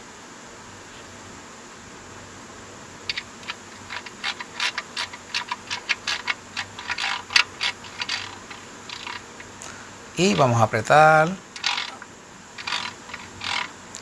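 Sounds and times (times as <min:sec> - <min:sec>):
irregular metallic clicking: 0:03.1 - 0:09.7, 0:11.6 - 0:14.0.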